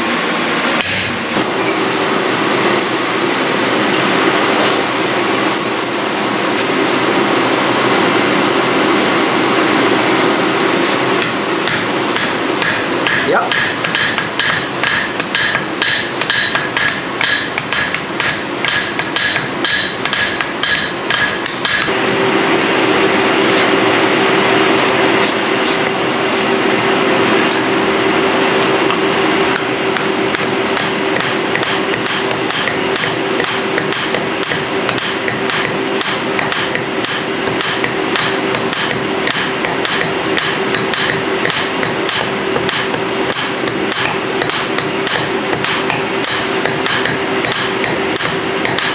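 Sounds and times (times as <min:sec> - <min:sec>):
loud steady roar with hum: 0:00.0 - 0:48.9
hammers striking steel on anvil: 0:00.8 - 0:01.2, 0:11.2 - 0:22.0, 0:27.4 - 0:27.8, 0:28.8 - 0:48.9.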